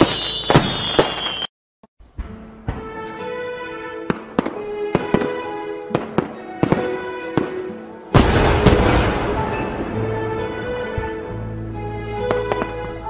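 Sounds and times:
firework boom: 0.0 - 1.3, 8.2 - 11.2
fireworks cracking and popping: 0.0 - 1.5, 4.0 - 10.3
music with sustained tones: 2.0 - 13.0.

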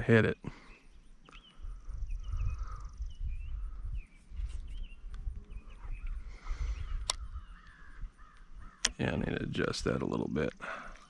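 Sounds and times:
small birds chirping: 0.0 - 11.0
low rumble on microphone: 1.5 - 9.6
sharp click: 7.0 - 7.2, 8.3 - 9.0.

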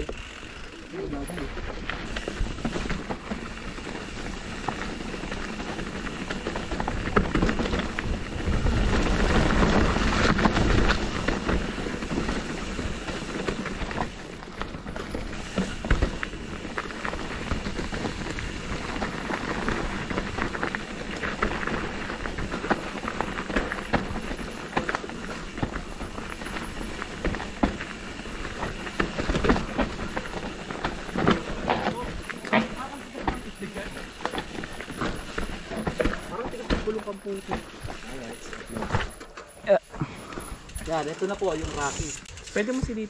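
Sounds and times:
footsteps on dirt trail: 0.0 - 43.0.

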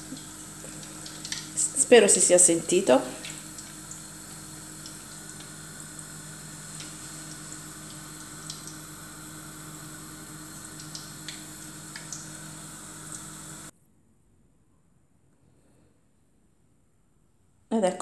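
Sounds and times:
oil popping and crackling: 0.0 - 1.7, 3.1 - 6.0, 6.6 - 9.0, 10.5 - 13.4
hot oil sizzling: 0.0 - 13.7.

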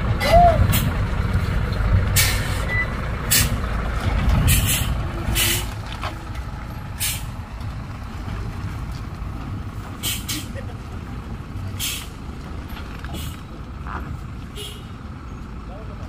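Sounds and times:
diesel truck engine running: 0.0 - 16.0
air brake hisses: 4.5 - 5.7, 7.0 - 7.3, 10.0 - 10.5, 11.8 - 12.1.

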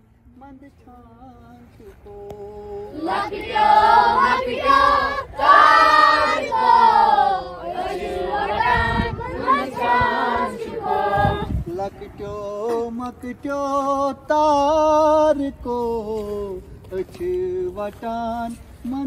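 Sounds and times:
children chanting in unison: 3.0 - 11.5.

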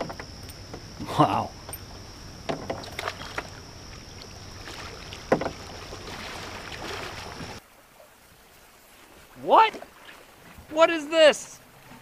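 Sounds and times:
water splashing: 0.0 - 12.0
short knocks: 2.4 - 3.6, 5.3 - 5.6.

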